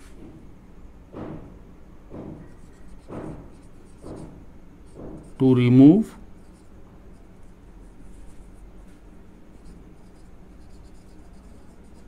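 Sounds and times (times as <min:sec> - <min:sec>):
low steady hum: 0:01.7 - 0:12.0
marker writing on whiteboard: 0:02.1 - 0:08.6, 0:09.5 - 0:12.0.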